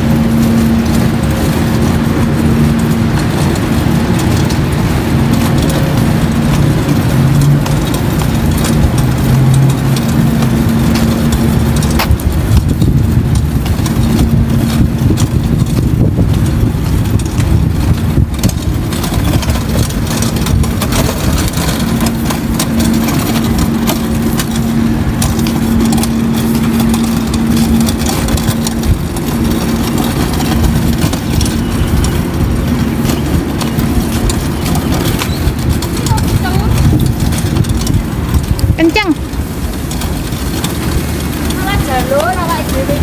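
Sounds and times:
small rattles: 0.0s - 43.0s
trolley wheels rumbling on asphalt: 0.0s - 43.0s.

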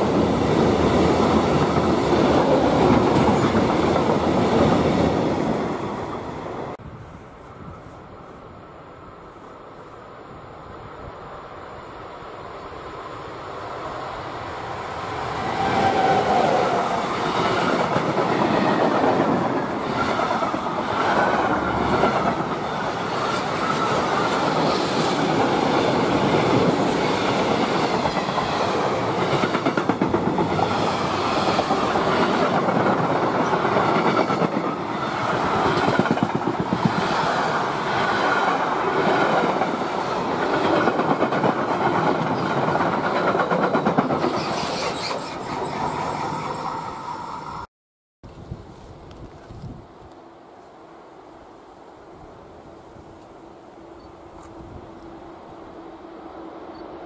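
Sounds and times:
electric locomotive passing: 0.0s - 47.7s
train wheels clattering over track: 17.3s - 45.6s.

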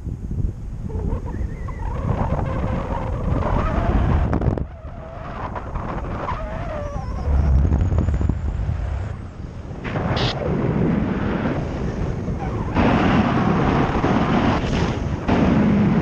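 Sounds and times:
strong wind buffeting microphone: 0.0s - 16.0s
thin wavering whistle: 0.9s - 3.0s, 6.3s - 8.4s.

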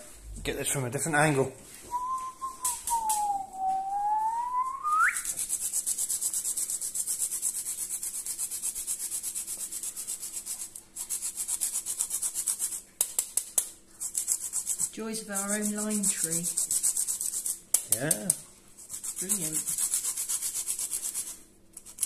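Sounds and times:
person whistling: 1.9s - 5.3s
metal grater rasping: 18.9s - 22.0s.

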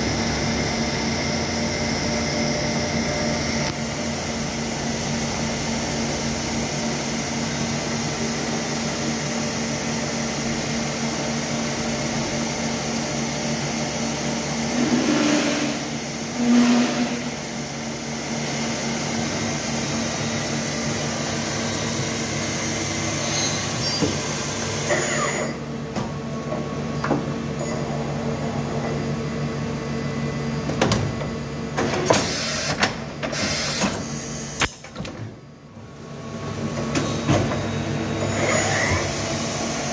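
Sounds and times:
machine electric hum: 0.0s - 31.9s
machine whir: 14.1s - 25.6s.

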